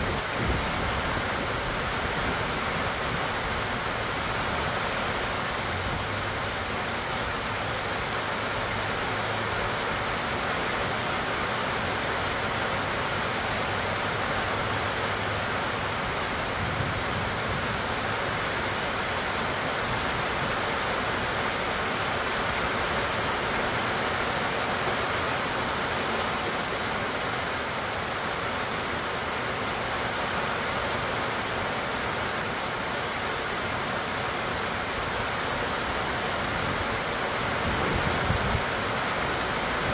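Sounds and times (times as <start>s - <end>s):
rain falling on trees and grass: 0.0s - 39.9s.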